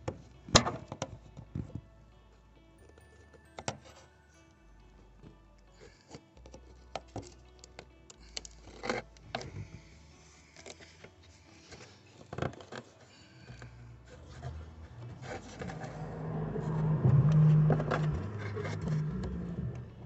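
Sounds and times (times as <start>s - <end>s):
plastic fitting clicking and scraping: 0.0s - 1.8s, 6.1s - 9.9s, 10.6s - 16.0s
low rubbing noise: 13.9s - 20.0s.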